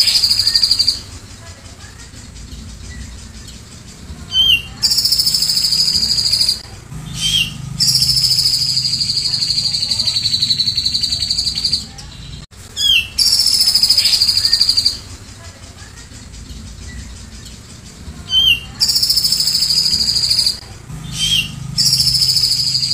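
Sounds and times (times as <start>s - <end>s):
bulbul singing fast trills: 0.0s - 22.9s.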